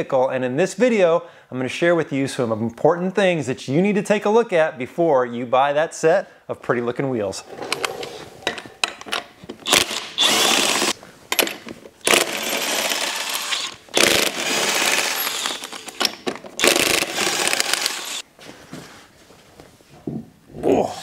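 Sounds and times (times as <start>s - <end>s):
impact wrench spinning lug nuts: 7.5s - 18.2s.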